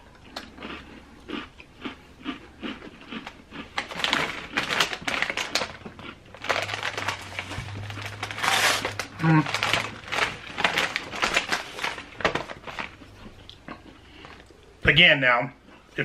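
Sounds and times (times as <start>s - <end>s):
crunchy chewing of cookies: 0.0s - 7.8s, 8.5s - 16.0s
low steady hum: 0.0s - 16.0s
plastic package crinkling: 3.8s - 13.6s.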